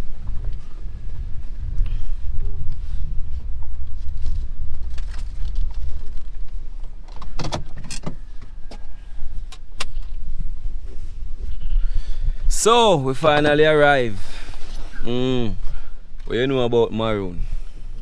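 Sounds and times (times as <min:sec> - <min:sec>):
car engine and road rumble: 0:00.0 - 0:11.5.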